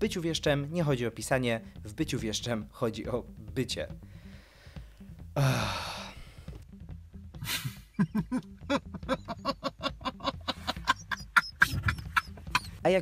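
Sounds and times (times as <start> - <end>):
man laughing hard: 7.4 - 12.7.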